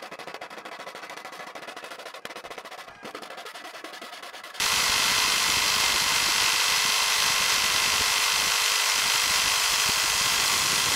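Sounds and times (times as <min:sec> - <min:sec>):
electric jigsaw buzzing: 0:04.6 - 0:10.9.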